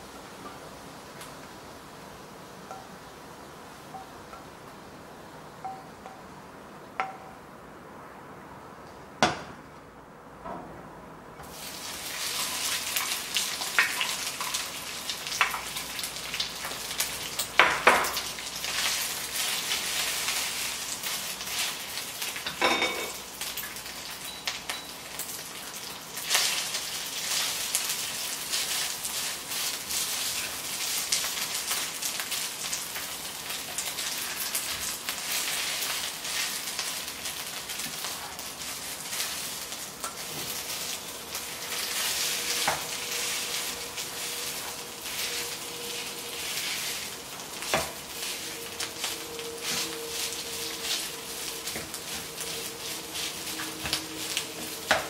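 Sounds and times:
rice sizzling in a wok: 0.0s - 6.4s, 11.4s - 55.0s.

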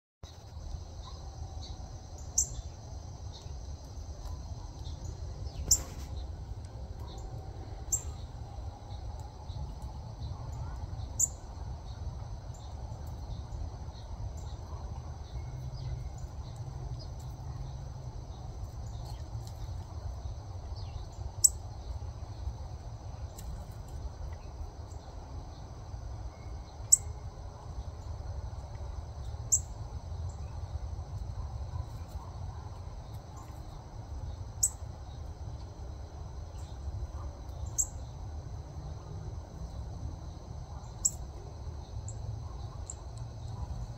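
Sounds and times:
high insect drone: 20.0s - 43.9s.

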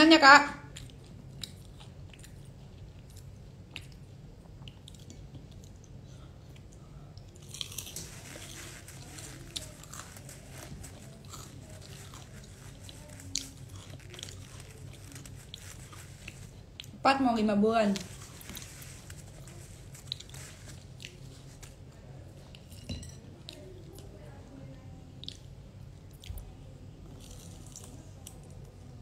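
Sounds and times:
low steady hum: 0.0s - 29.0s
person chewing crispy food: 0.7s - 17.0s, 18.0s - 22.8s, 27.1s - 28.7s.

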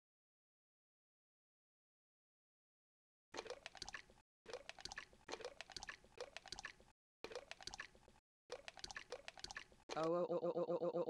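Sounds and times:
wet squelching spurts: 3.4s - 10.2s.

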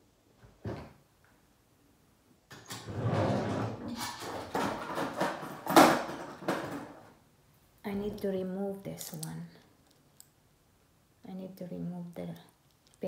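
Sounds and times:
tools clattering in a drawer: 3.9s - 7.1s.

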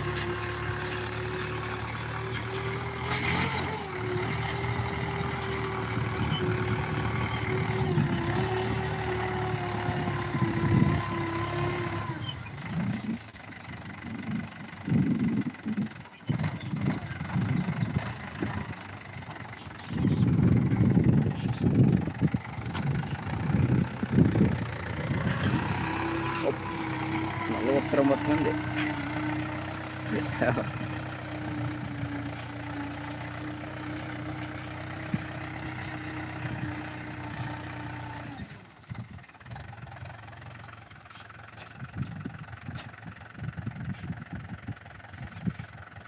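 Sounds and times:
tractor engine running: 0.0s - 46.0s
low rumbling bursts: 16.5s - 37.8s.

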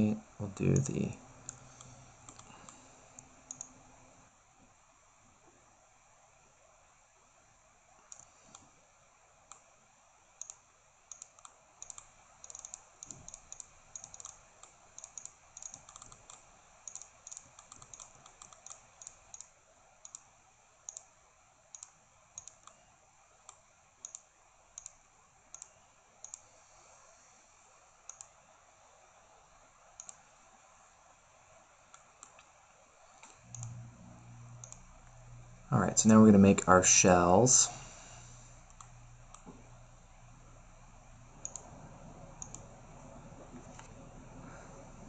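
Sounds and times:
computer mouse button clicking: 0.8s - 3.8s, 10.4s - 14.4s, 15.0s - 20.2s, 21.8s - 22.8s, 24.8s - 26.4s, 34.6s - 34.8s, 41.4s - 41.7s, 42.4s - 42.6s.

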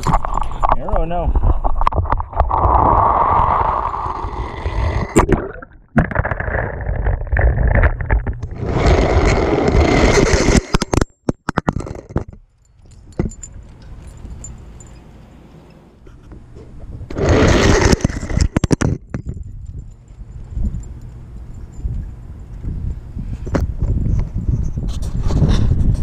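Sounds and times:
clicks and clatters: 6.0s - 15.0s, 17.1s - 22.0s.

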